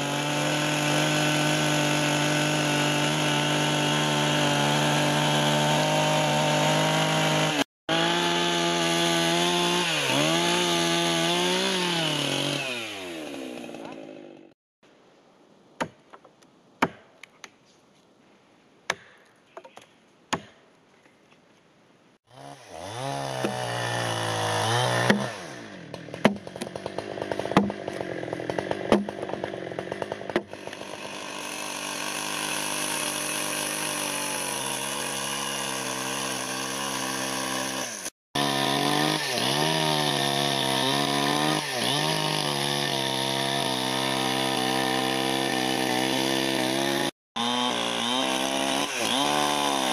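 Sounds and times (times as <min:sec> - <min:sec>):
chainsaw cutting wood: 0:00.0 - 0:14.6, 0:22.3 - 0:49.9
axe striking wood: 0:15.8 - 0:17.2, 0:18.9 - 0:19.2, 0:20.3 - 0:20.6, 0:24.9 - 0:25.4, 0:26.1 - 0:28.0, 0:28.6 - 0:29.4.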